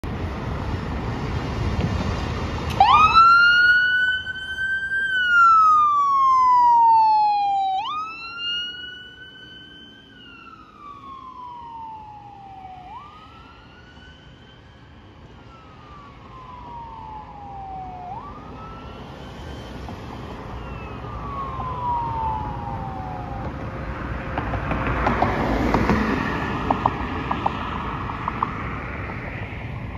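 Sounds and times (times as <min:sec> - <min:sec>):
road traffic noise: 0:00.0 - 0:29.9
ambulance siren wailing: 0:02.7 - 0:28.4.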